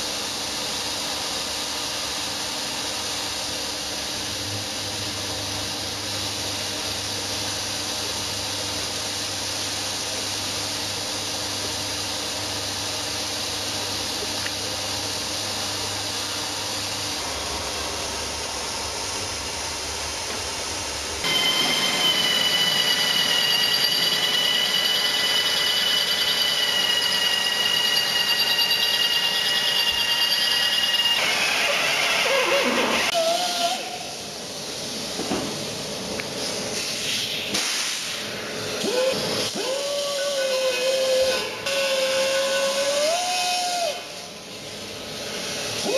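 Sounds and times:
drill boring into metal: 0:21.3 - 0:33.8.

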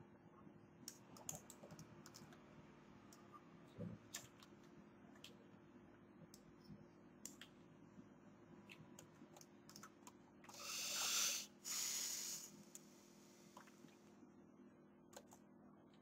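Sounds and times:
mouse and keyboard clicks: 0:09.0 - 0:10.2
hissing rushes of air: 0:10.6 - 0:12.5.

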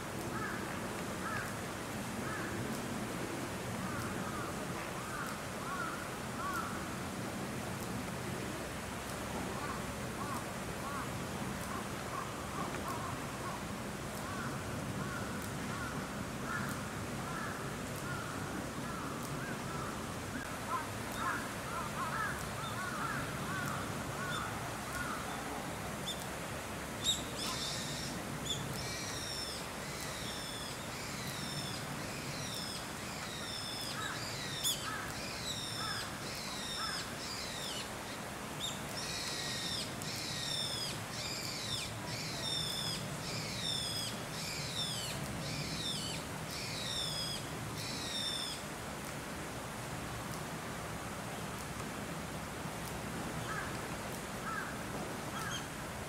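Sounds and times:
birds calling: 0:03.8 - 0:06.8, 0:14.2 - 0:26.3, 0:27.0 - 0:48.6, 0:53.4 - 0:53.8, 0:54.4 - 0:54.7, 0:55.3 - 0:55.7.

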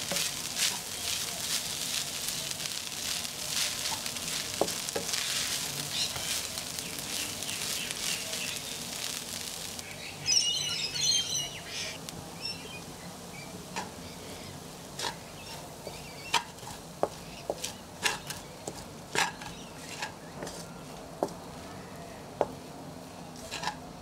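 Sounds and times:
wooden spatula scraping: 0:00.0 - 0:09.8, 0:14.9 - 0:23.9
rice sizzling in a wok: 0:00.0 - 0:24.0.

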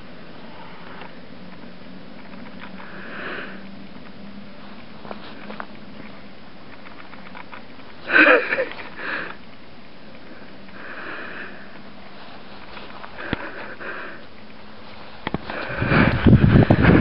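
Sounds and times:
sniffing breaths: 0:08.0 - 0:09.4, 0:10.2 - 0:17.0
microphone handling noise: 0:15.1 - 0:17.0
wind rumbling on microphone: 0:15.2 - 0:17.0.

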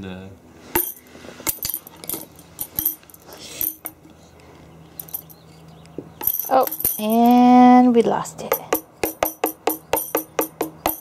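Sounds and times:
tambourine tapped with stick: 0:08.5 - 0:11.0.

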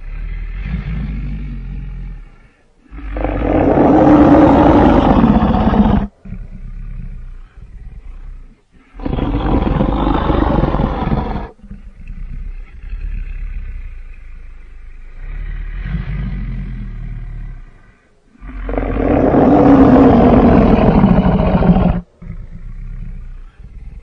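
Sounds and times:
low dinosaur growl: 0:00.0 - 0:24.0
loud dinosaur roar: 0:02.9 - 0:06.5, 0:08.9 - 0:11.6, 0:18.4 - 0:22.9.

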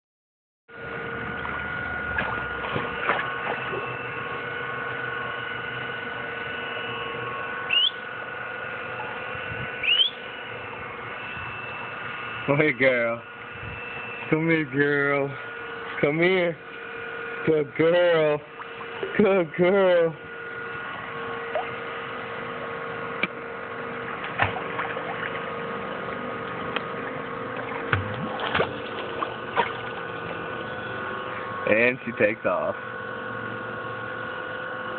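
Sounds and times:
steady hum of fixed tones: 0:00.7 - 0:34.9
pool water sloshing: 0:00.8 - 0:12.3, 0:18.4 - 0:19.6, 0:20.2 - 0:31.6
short water splashes: 0:02.2 - 0:03.9, 0:24.2 - 0:25.5, 0:26.5 - 0:30.4.

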